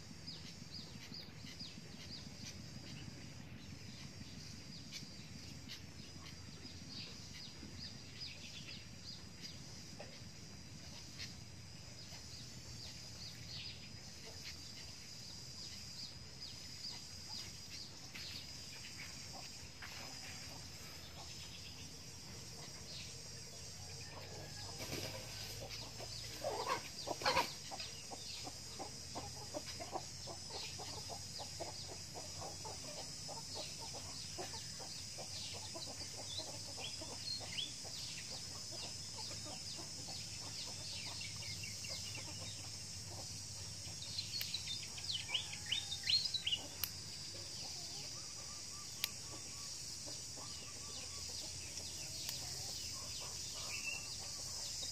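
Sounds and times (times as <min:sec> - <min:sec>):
chickens clucking: 0:24.1 - 0:54.9.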